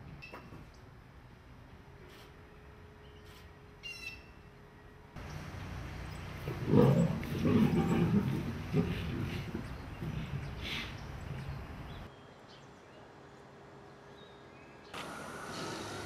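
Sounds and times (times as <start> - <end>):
bird chirp: 3.0 - 8.0, 9.1 - 15.8
lionesses growling: 6.2 - 11.5.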